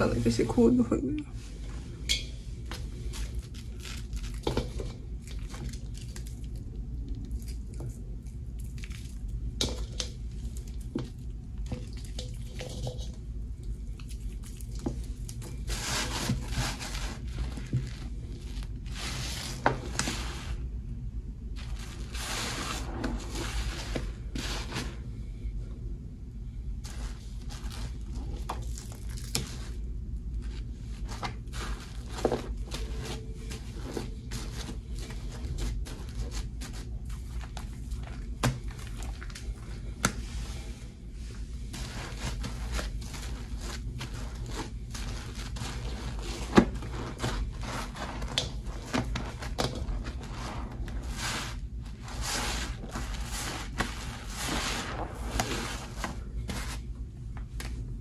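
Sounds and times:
low steady hum: 0.0 - 58.0
sponges squelching in soapy lather: 13.9 - 20.7, 21.5 - 25.1, 26.8 - 29.8, 30.4 - 56.8.

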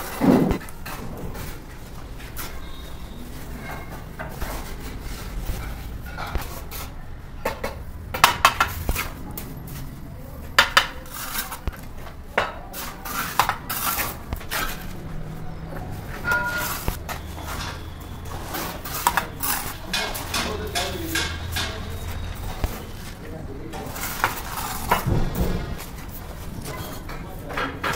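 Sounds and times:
trowel scraping mortar: 11.0 - 11.9, 12.7 - 15.0, 16.3 - 25.1
trowel clinking on bricks: 16.1 - 22.8.

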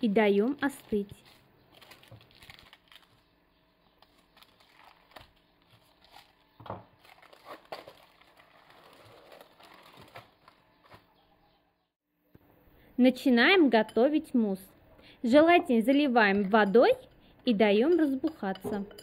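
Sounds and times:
parchment paper peeled off cake: 0.8 - 3.3, 4.0 - 6.4, 7.0 - 10.6.

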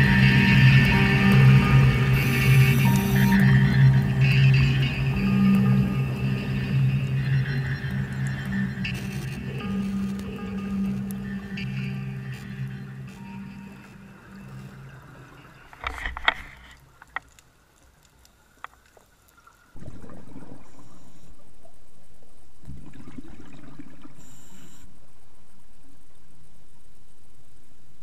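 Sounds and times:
background music: 0.0 - 16.8
exhaled bubbles rumbling underwater: 19.5 - 24.8.

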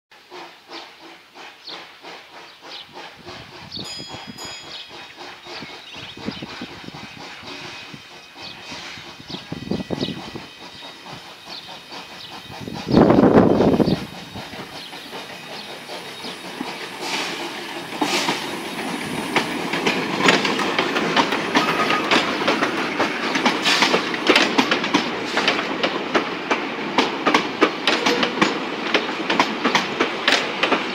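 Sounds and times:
steam train running: 0.1 - 30.9
wheels clacking over rail joints: 10.0 - 30.9.

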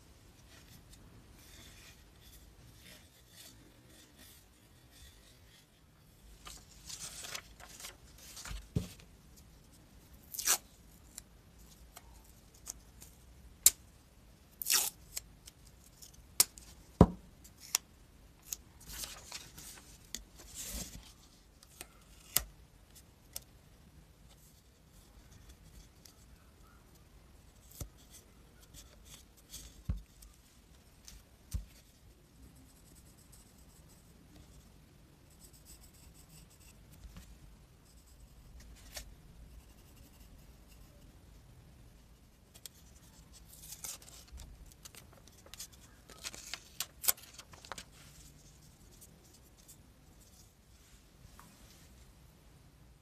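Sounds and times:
paper rustling and crinkling: 6.3 - 9.1, 18.5 - 21.4, 42.6 - 50.4.

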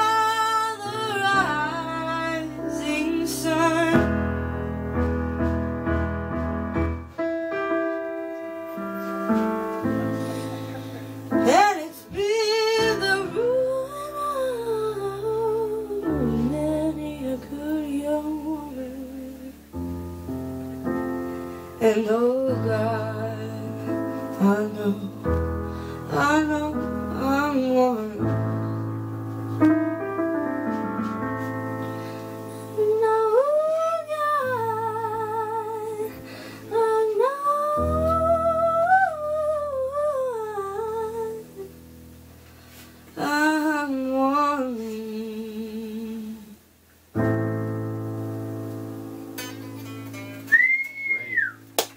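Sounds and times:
woman singing wordless notes: 0.0 - 4.6, 11.3 - 19.9, 21.7 - 28.8, 32.6 - 41.8, 43.1 - 47.3
electric keyboard chords: 0.0 - 43.2, 47.1 - 51.9.

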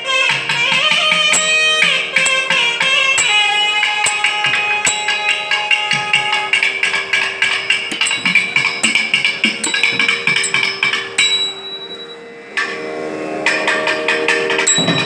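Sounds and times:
drum played in fast strokes: 0.9 - 11.2
steady drone: 1.2 - 15.0.

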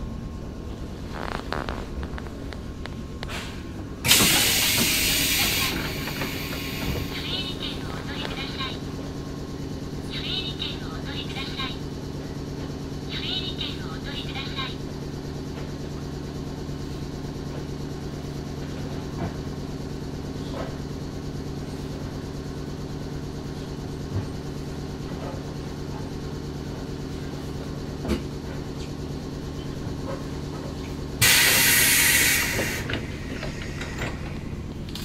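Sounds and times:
train machinery hum: 0.0 - 35.0
compressed-air hiss: 4.1 - 7.1, 31.2 - 32.9.

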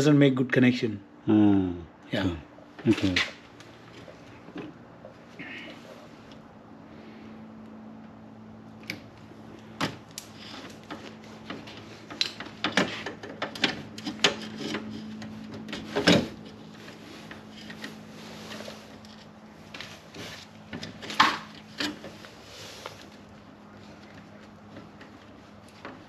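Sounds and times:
steady low hum: 0.0 - 26.0
hand tools clicking on wires: 8.8 - 17.9.

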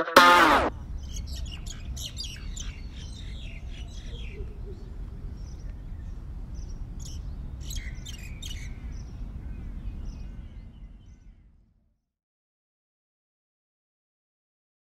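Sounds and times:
birds chirping: 0.2 - 11.6.

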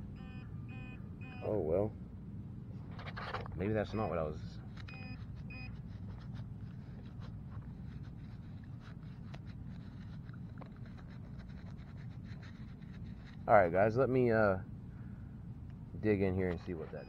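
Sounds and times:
low steady rumble: 0.0 - 17.0
soil scraping and ticking: 2.9 - 13.9.

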